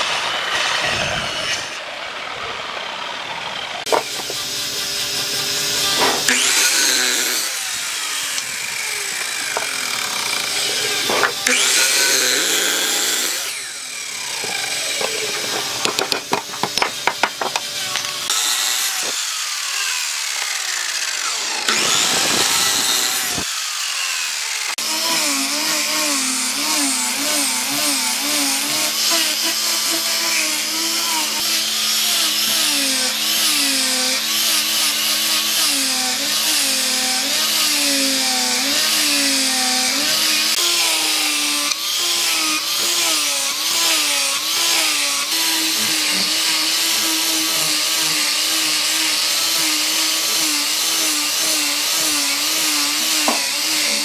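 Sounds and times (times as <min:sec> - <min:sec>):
angle grinder sanding board: 0:00.0 - 0:54.0
miter saw cutting wood: 0:00.0 - 0:54.0.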